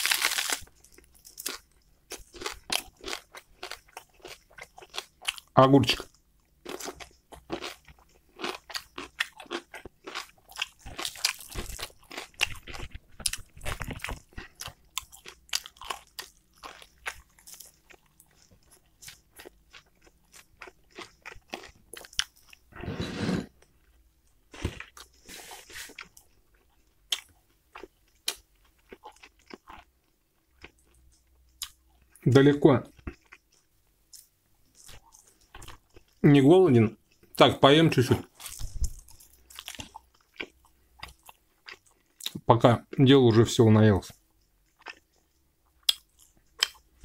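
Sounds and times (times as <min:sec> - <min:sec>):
person chewing crunchy food: 0:00.0 - 0:32.2, 0:32.9 - 0:36.2, 0:38.2 - 0:42.4, 0:44.4 - 0:47.0.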